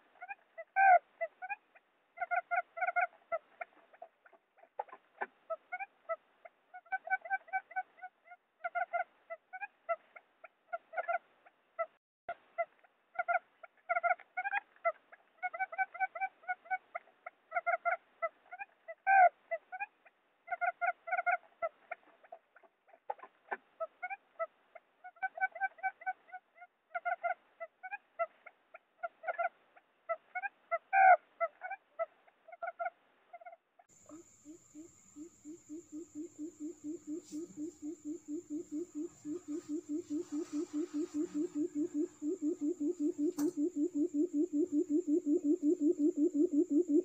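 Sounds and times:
quail lure calls: 0.2 - 1.6, 2.2 - 10.0, 12.6 - 19.9, 20.5 - 29.5, 30.2 - 47.0
quail lure call chirping: 33.4 - 47.0.

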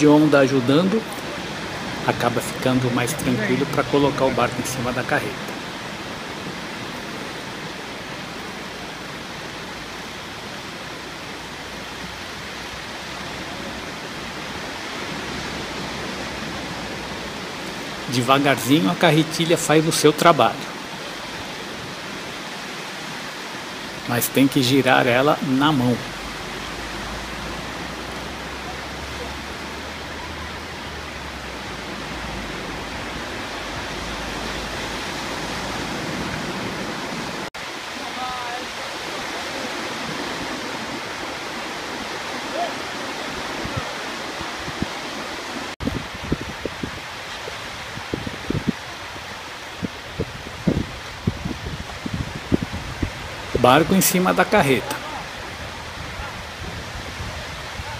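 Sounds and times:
small surf breaking on sand: 0.0 - 57.9
wind rumbling on microphone: 0.0 - 57.9.

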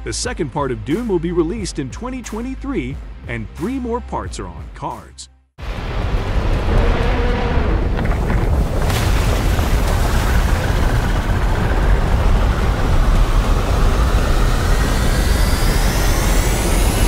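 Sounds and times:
deep rumble of churning sand: 5.6 - 17.0
high whine: 10.2 - 17.0.

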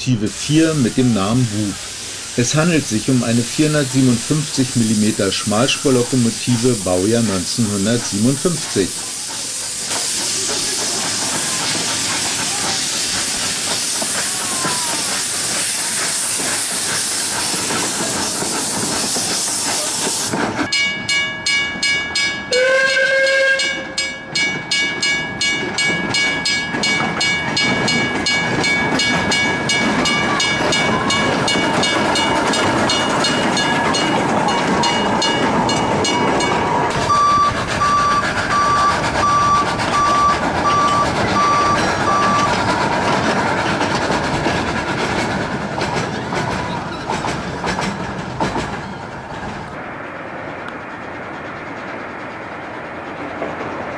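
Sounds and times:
steam hissing: 0.1 - 20.7, 27.0 - 46.0
level-crossing alarm ringing: 20.7 - 42.6
steam whistle blast: 22.5 - 23.9
crossing beeper pulsing: 33.0 - 42.6.

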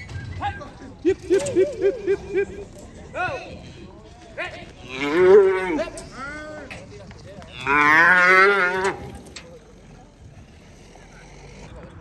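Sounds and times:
cow bellowing: 4.8 - 6.1, 7.5 - 9.2.

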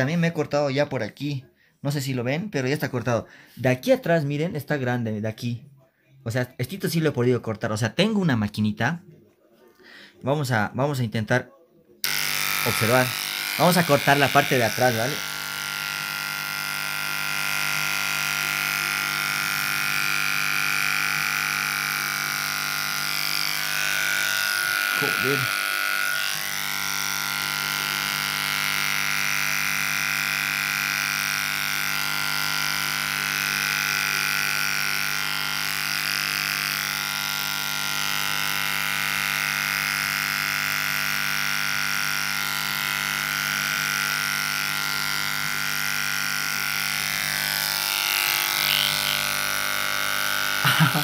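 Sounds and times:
electric hair clippers buzzing: 12.0 - 51.0.

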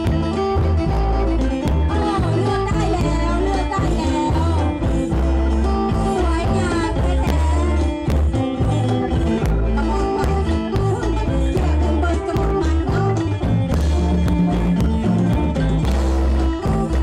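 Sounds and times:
drums: 0.0 - 17.0.

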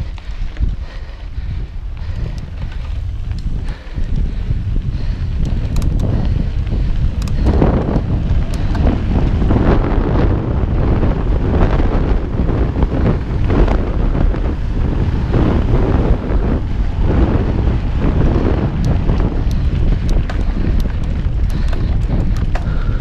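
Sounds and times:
wind buffeting microphone: 0.0 - 23.0
tyre and frame rattle: 17.2 - 23.0.

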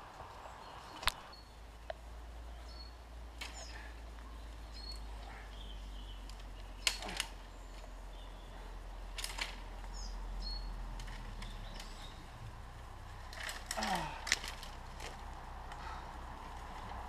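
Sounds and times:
steady low rumble: 0.0 - 17.0
small birds chirping: 0.1 - 17.0
sharp clicks: 6.2 - 7.9.

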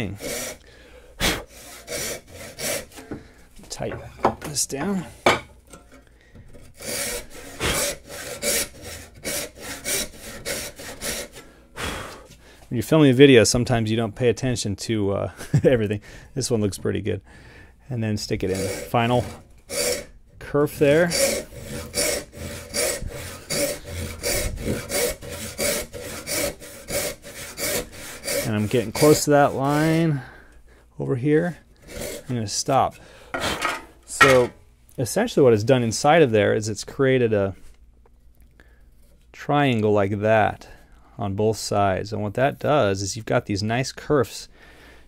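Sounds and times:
hand saw cutting wood: 0.0 - 0.6, 1.2 - 3.3, 6.4 - 12.2, 18.2 - 30.3, 31.8 - 34.6.

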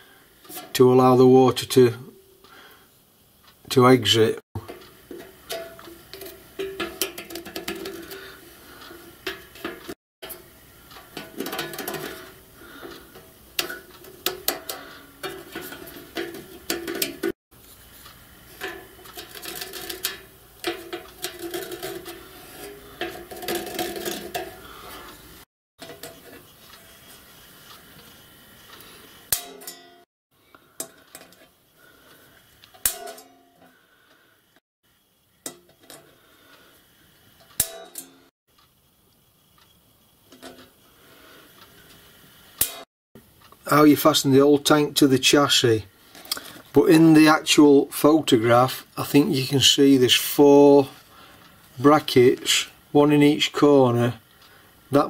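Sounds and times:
sheet metal clattering and scraping: 4.6 - 17.3, 18.5 - 25.0.

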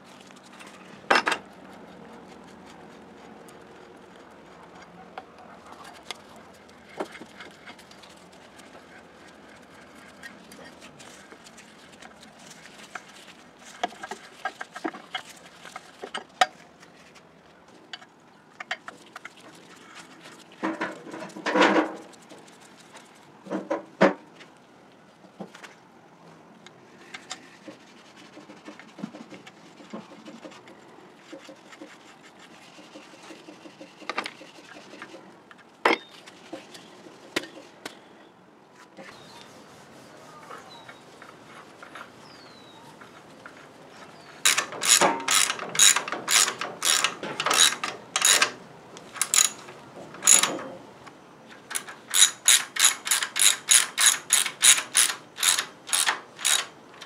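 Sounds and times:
metal clinks and scraping: 44.4 - 50.7, 51.7 - 56.7.

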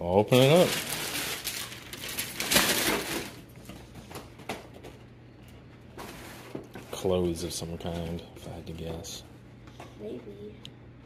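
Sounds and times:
paper and cardboard rustling: 0.3 - 4.4.

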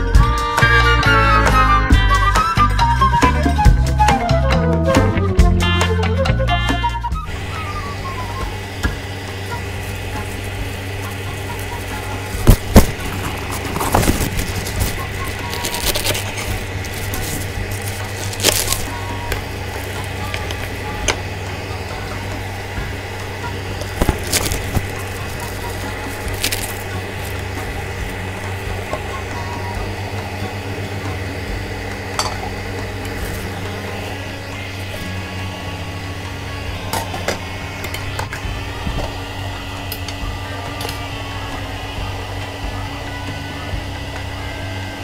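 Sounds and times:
steady low hum: 7.2 - 45.0
knife crunching through stems: 10.2 - 20.9, 23.7 - 28.5.

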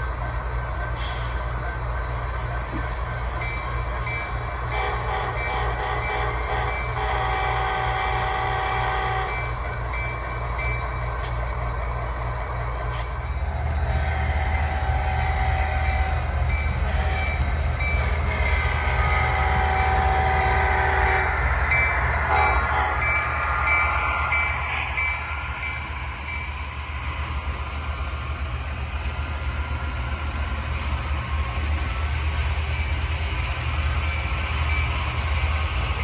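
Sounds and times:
locomotive horn blasts: 4.7 - 9.5, 18.3 - 21.4, 22.3 - 23.2.

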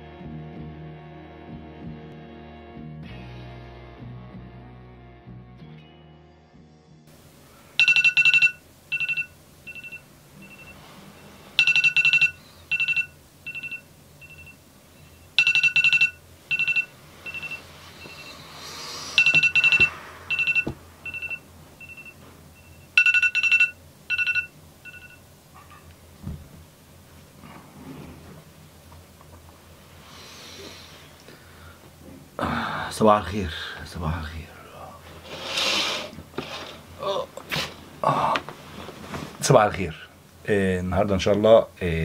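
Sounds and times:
electronic alarm beeping: 7.8 - 25.2.

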